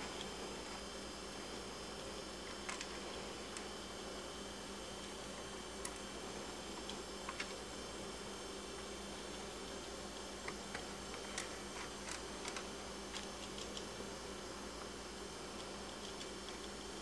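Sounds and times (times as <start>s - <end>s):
steady hiss and low hum: 0.0s - 17.0s
rats clicking and scratching: 2.4s - 3.7s, 5.4s - 8.1s, 8.7s - 14.1s, 15.5s - 17.0s.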